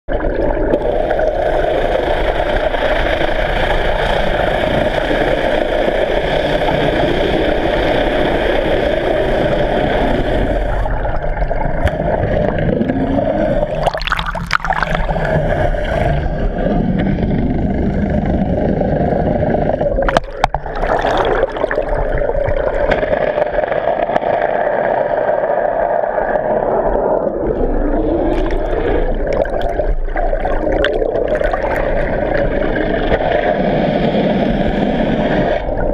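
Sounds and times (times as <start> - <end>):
boat engines droning underwater: 0.1 - 35.9
water splashing against camera: 10.4 - 16.2, 19.8 - 24.6, 26.3 - 33.3.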